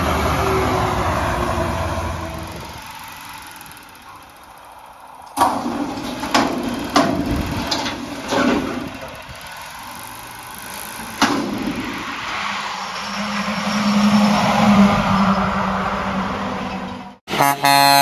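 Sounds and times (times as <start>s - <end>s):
garbage truck engine revving: 0.0s - 18.0s
passing truck engine: 0.0s - 18.0s
steel dumpster clanking and banging: 5.4s - 9.1s.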